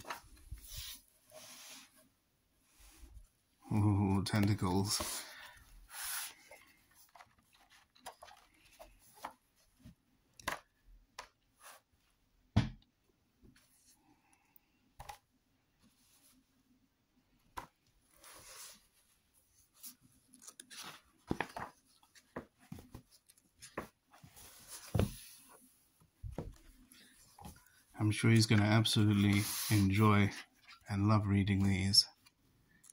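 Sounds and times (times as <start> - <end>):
book pages turning: 0.0 - 1.6, 4.3 - 11.8, 19.7 - 25.5, 26.4 - 31.8.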